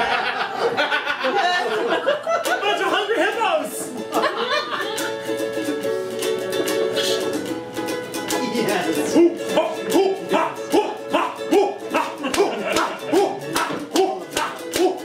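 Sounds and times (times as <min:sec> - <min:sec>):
ukulele strumming: 0:02.3 - 0:15.0
person humming: 0:09.2 - 0:15.0.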